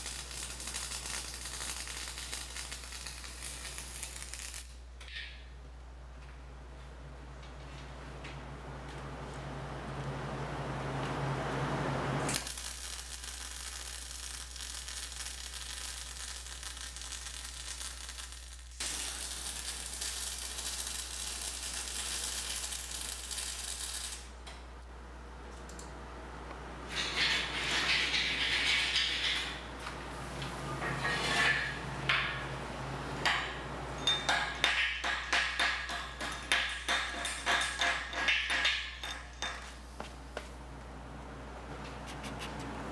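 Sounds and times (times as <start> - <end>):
welder arc crackling hiss: 0.0 - 4.9, 12.2 - 24.4.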